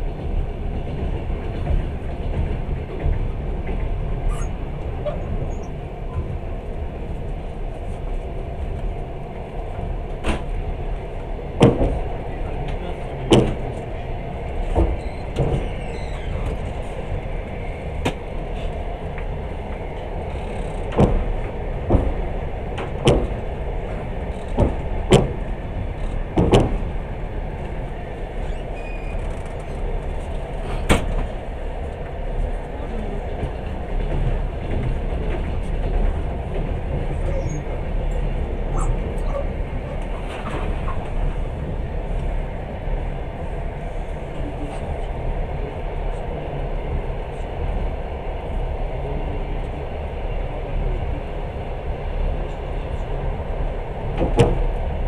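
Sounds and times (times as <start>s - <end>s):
train low rumble: 0.0s - 55.0s
wheels clicking over rail joints: 18.0s - 27.0s.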